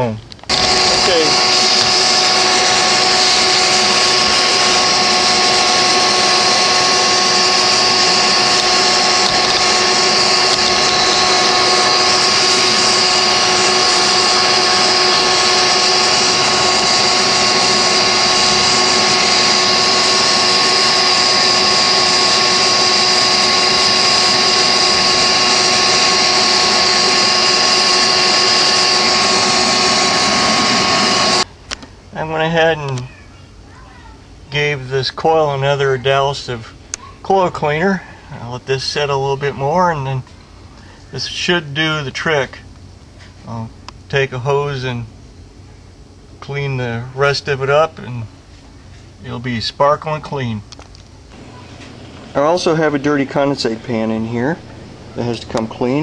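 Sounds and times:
wet vac whining: 0:00.0 - 0:33.2, 0:50.0 - 0:56.0.

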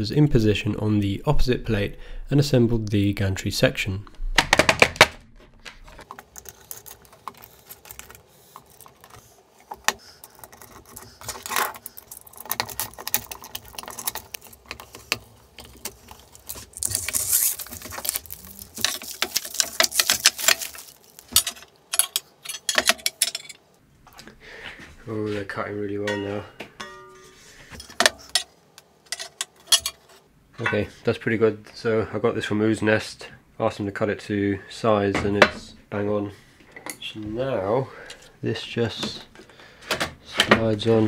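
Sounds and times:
metal hardware clicking and clinking: 0:09.8 - 0:16.6, 0:17.7 - 0:23.6, 0:29.1 - 0:30.8.

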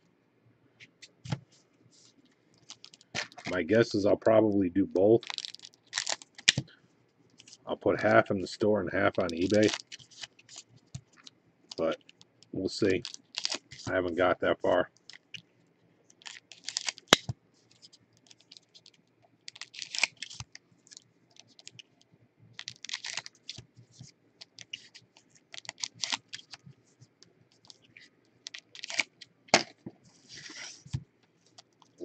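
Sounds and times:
foil wrappers crinkling: 0:02.6 - 0:04.1, 0:05.0 - 0:06.7, 0:08.9 - 0:12.2, 0:12.8 - 0:15.4, 0:16.1 - 0:21.8, 0:22.6 - 0:23.7, 0:24.4 - 0:26.7, 0:27.5 - 0:29.3
wrapper tearing: 0:05.2 - 0:06.6, 0:09.1 - 0:10.6, 0:12.9 - 0:13.9, 0:16.2 - 0:17.3, 0:18.2 - 0:20.5, 0:22.6 - 0:23.6, 0:24.4 - 0:26.6, 0:27.6 - 0:29.6.

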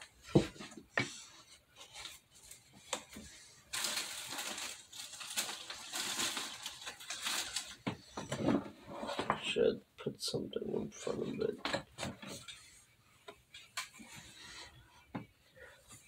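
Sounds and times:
hand rummaging rustling: 0:02.0 - 0:07.8.

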